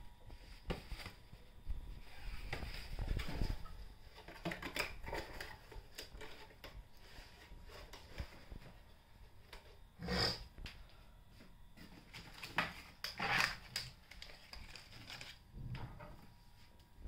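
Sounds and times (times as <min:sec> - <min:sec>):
plastic bottles rustling: 0:00.5 - 0:09.6, 0:11.8 - 0:15.5.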